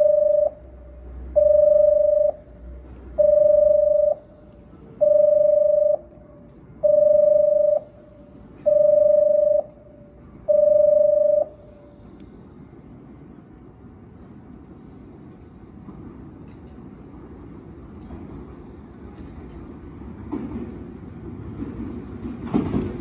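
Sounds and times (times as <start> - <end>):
electronic warning beeps: 0.0 - 2.5, 3.2 - 4.3, 5.0 - 6.2, 6.8 - 8.0, 8.6 - 9.8, 10.5 - 11.6.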